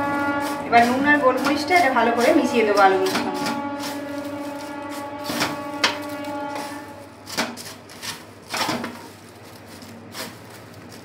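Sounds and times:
fried potato crackling: 0:00.0 - 0:11.0
tissue paper rustling: 0:02.8 - 0:11.0.

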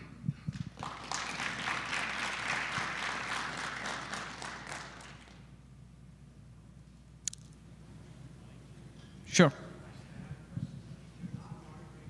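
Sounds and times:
audience applauding: 0:00.6 - 0:05.5.

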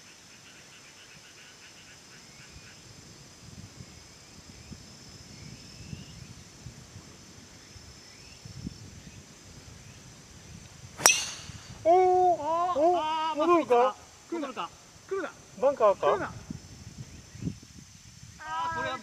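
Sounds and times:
wind on microphone: 0:02.6 - 0:12.6, 0:15.5 - 0:19.0.

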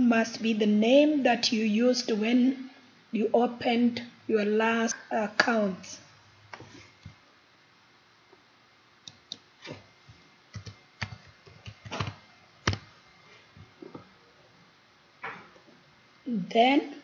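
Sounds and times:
keyboard typing: 0:10.1 - 0:12.9.

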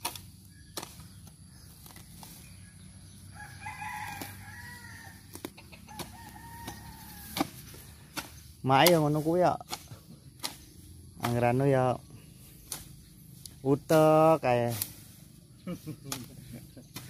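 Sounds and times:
rooster crowing: 0:03.3 - 0:05.2, 0:05.9 - 0:07.6.

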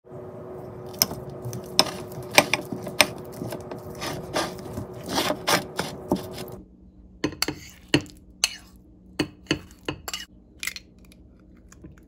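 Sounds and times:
faint steady hum: 0:00.1 - 0:12.0
fork mashing banana: 0:00.9 - 0:06.6.

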